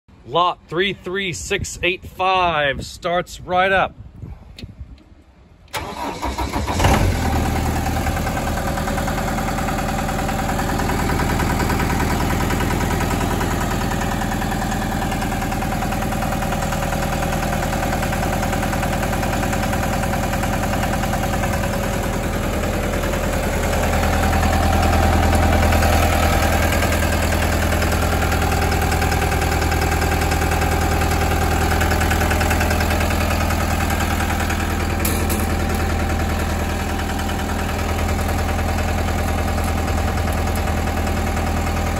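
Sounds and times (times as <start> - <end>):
diesel engine starting and idling: 5.5 - 41.9.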